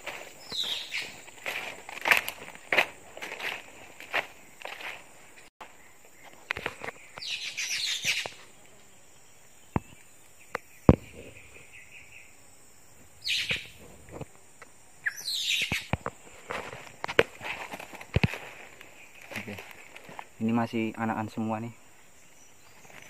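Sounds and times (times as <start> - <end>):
harsh rasping bird calls: 0.0 - 1.6, 5.6 - 12.4, 13.2 - 13.8, 15.0 - 16.5, 18.0 - 23.0
twigs snapping: 0.0 - 5.0, 15.7 - 20.4.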